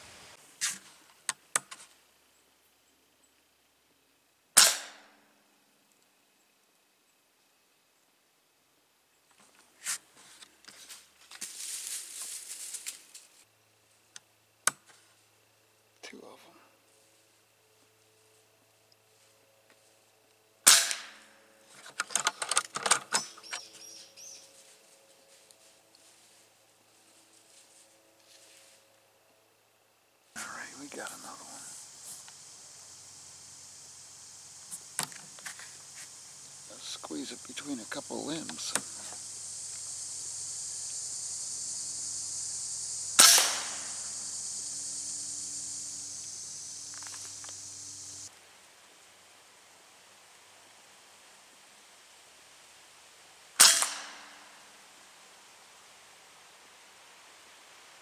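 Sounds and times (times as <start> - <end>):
insects buzzing: 0.0 - 58.0
sharp gunshot: 4.6 - 5.2, 20.7 - 21.2, 43.2 - 44.0, 53.6 - 54.5
rustling in dry leaves: 9.8 - 13.4, 23.8 - 29.0
faint high chirps: 23.2 - 26.0.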